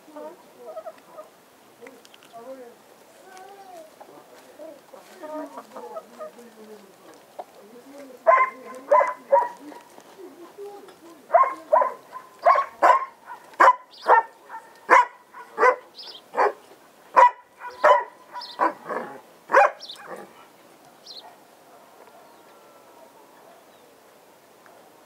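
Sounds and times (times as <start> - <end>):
dog barking: 8.2 - 9.9, 11.3 - 20.4, 21.0 - 22.4.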